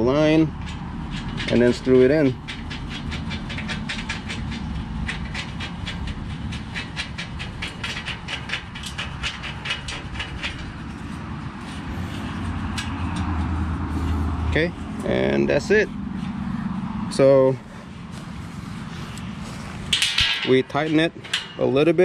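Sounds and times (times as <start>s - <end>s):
metallic clicking of bolt screwing: 0.6s - 13.5s.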